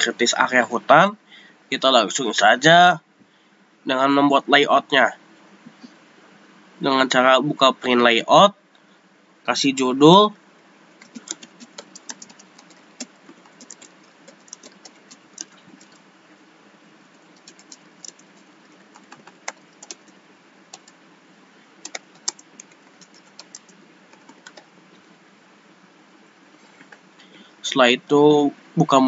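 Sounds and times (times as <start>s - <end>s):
faint steady hiss: 0.0s - 29.0s
keyboard typing: 11.0s - 16.0s, 17.1s - 21.0s, 21.8s - 24.7s.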